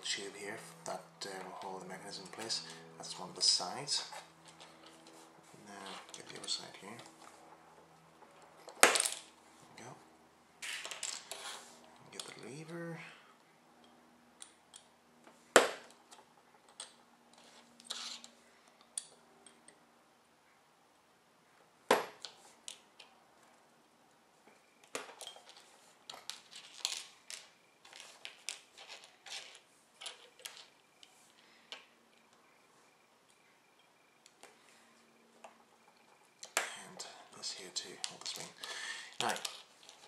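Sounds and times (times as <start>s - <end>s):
plastic pieces clicking and tapping: 38.0s - 40.0s.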